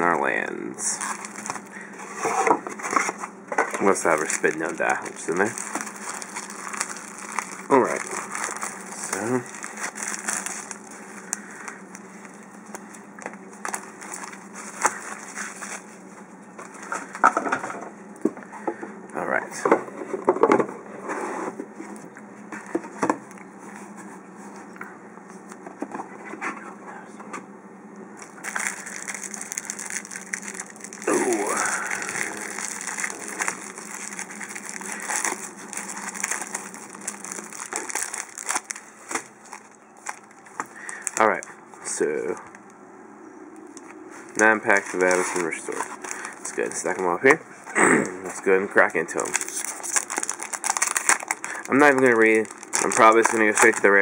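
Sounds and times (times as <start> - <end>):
faint steady hum: 0.0 - 54.0
foil wrappers crinkling: 0.8 - 17.6, 28.2 - 42.6, 43.7 - 47.4, 48.4 - 54.0.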